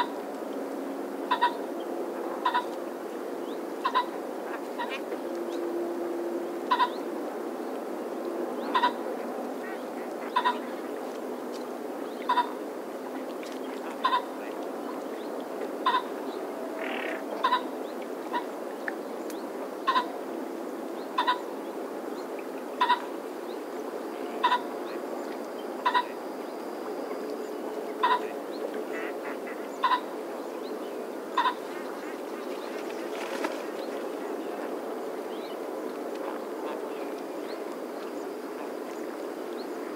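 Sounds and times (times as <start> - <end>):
steady background noise: 0.0 - 39.9
pheasant calling: 1.3 - 1.6, 2.4 - 2.8, 3.8 - 4.2, 6.7 - 7.0, 8.6 - 9.0, 9.7 - 10.8, 12.1 - 12.6, 14.0 - 14.4, 15.8 - 16.2, 16.8 - 17.7, 19.8 - 20.1, 21.2 - 21.4, 22.8 - 23.1, 24.4 - 24.7, 25.8 - 26.2, 28.0 - 28.4, 29.5 - 30.1, 31.3 - 32.2.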